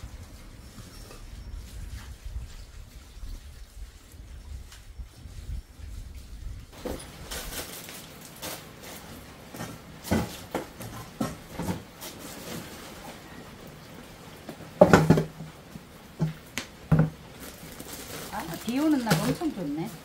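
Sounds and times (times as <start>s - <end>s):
knocks and clatter of handling: 6.8s - 13.5s, 14.4s - 20.0s.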